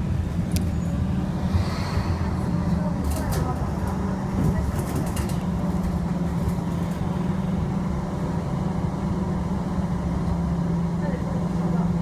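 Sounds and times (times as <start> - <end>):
low hum: 0.0 - 4.6
bus engine drone: 0.0 - 12.0
road rumble: 0.0 - 12.0.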